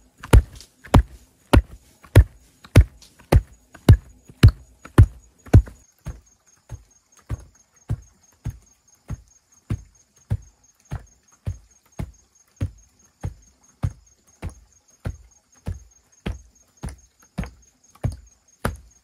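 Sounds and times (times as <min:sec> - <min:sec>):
tamper thudding on earth: 0:00.2 - 0:06.3.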